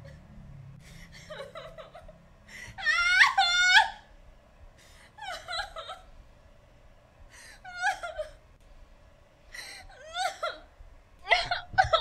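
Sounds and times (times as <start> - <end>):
woman crying and sobbing: 0.8 - 4.1, 4.8 - 6.1, 7.3 - 8.4, 9.5 - 12.0.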